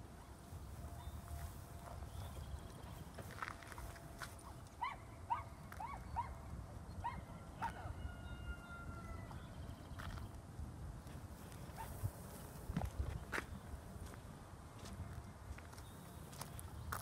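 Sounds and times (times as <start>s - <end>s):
footsteps on asphalt: 1.1s - 4.8s, 9.4s - 10.4s, 11.0s - 17.0s.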